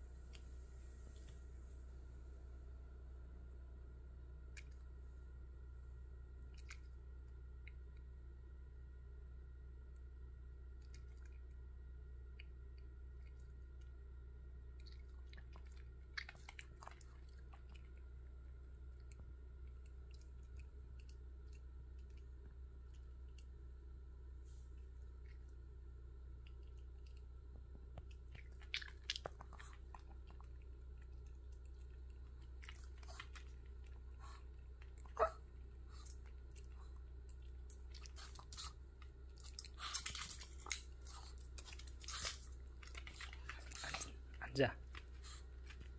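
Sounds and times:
low steady hum: 0.0 - 45.9
dog lip smacking and clicks: 28.0 - 35.2.

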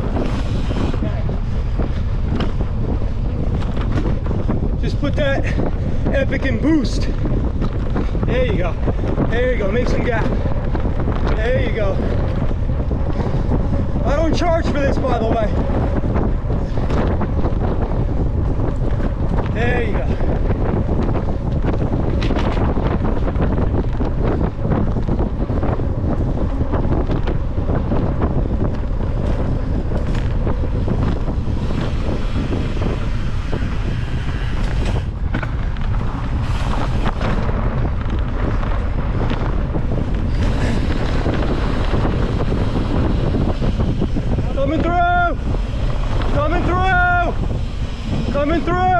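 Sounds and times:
bike rattling over trail: 0.0 - 48.9
wind buffeting microphone: 0.0 - 48.9.

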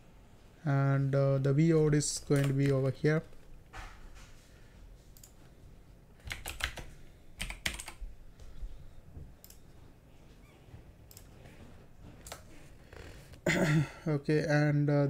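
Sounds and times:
typing on computer keyboard: 2.2 - 2.8, 6.2 - 8.0.

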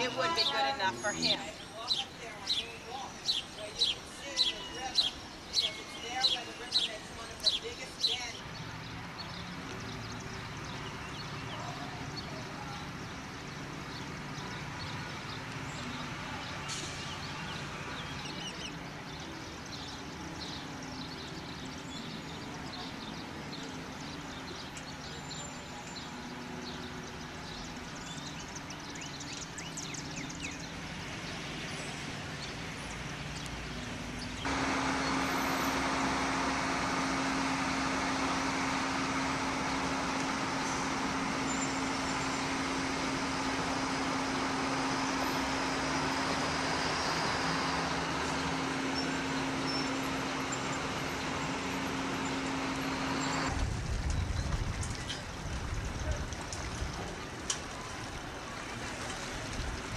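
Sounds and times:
engine drone: 0.0 - 2.0, 26.3 - 59.9
street traffic noise: 0.0 - 59.9.

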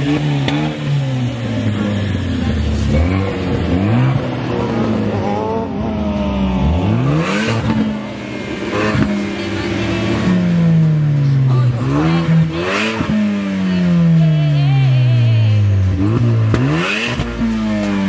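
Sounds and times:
car engine revving: 0.0 - 18.0.

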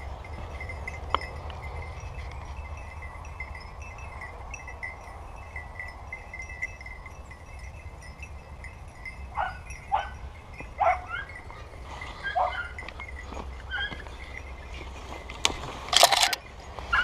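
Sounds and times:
faint high jingle: 0.0 - 15.3
puppies barking: 9.3 - 10.2, 10.8 - 12.9, 13.6 - 14.2.

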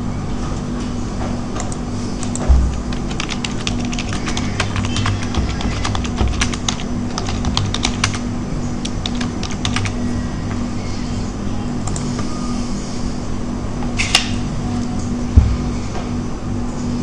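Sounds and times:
keyboard keys clicking: 1.6 - 10.6
low hum: 1.8 - 16.9.

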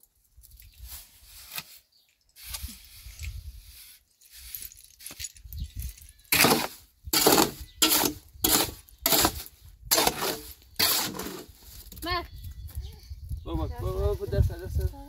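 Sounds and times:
shovel scraping wet cement: 1.0 - 4.5, 6.3 - 11.6.

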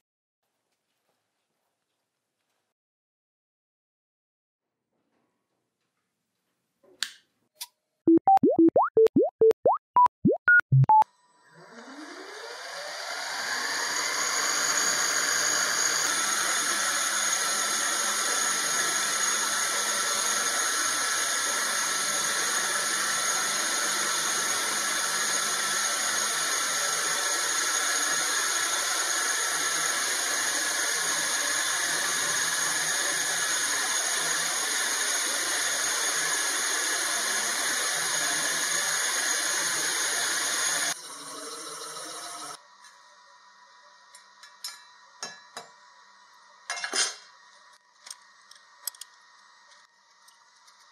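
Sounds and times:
milling machine spindle whine: 11.6 - 42.6.

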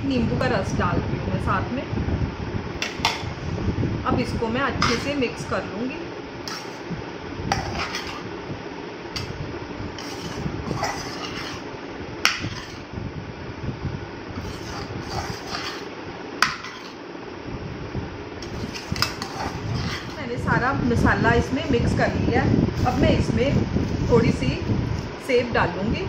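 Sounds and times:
spoon scraping food in a pan: 4.8 - 5.2, 6.4 - 6.9, 7.5 - 8.3, 10.0 - 11.7, 12.3 - 12.9, 14.4 - 17.0, 18.4 - 20.3.

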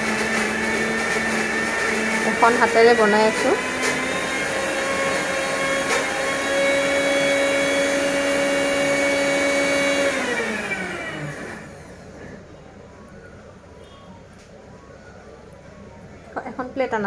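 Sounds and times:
appliance motor humming and whining: 0.0 - 12.1.

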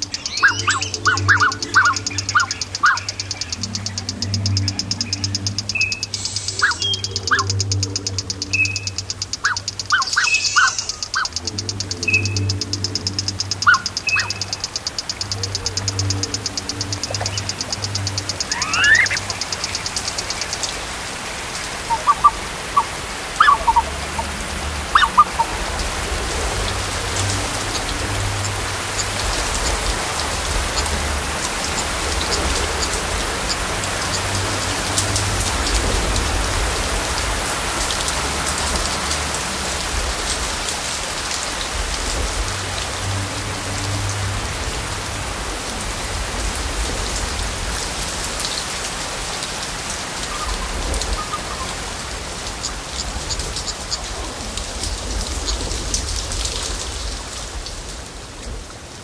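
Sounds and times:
bird chirps: 0.0 - 20.8, 21.8 - 24.3, 24.9 - 25.7, 50.3 - 51.8
rain falling: 0.0 - 59.0.

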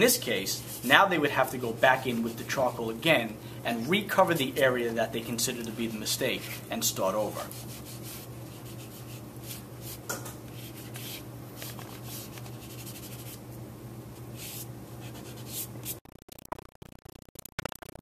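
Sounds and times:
steady low hum: 0.0 - 16.0
eraser rubbing on paper: 7.3 - 13.4, 14.3 - 16.0.

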